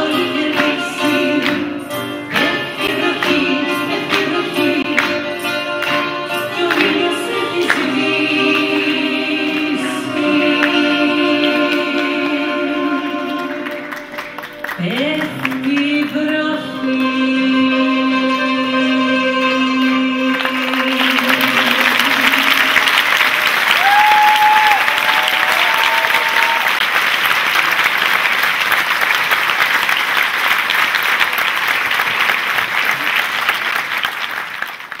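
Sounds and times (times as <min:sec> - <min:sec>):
woman singing: 0:00.0 - 0:05.2, 0:06.4 - 0:13.9, 0:14.7 - 0:23.1
audience applause: 0:13.2 - 0:15.7, 0:20.3 - 0:35.0
audience cheer: 0:22.4 - 0:27.7.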